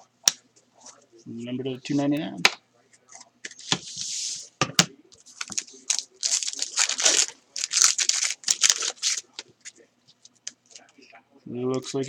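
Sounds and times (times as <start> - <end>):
wrapper tearing and crinkling: 5.4 - 9.4.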